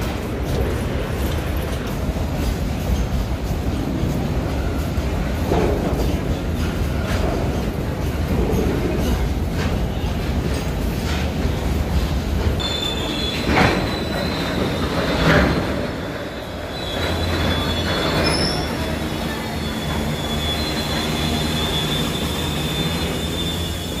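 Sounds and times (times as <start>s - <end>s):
loud train clanks: 0.0s - 24.0s
train wheels rumbling over rails: 0.0s - 24.0s
high-pitched wheel squeal: 12.6s - 24.0s.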